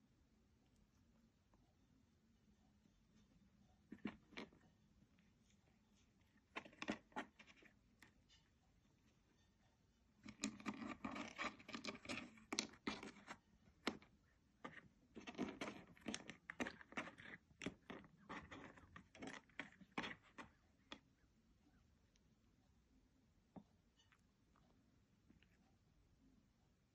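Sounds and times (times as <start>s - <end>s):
kibble clicking on plastic feeder: 6.4s - 8.2s, 10.2s - 21.1s.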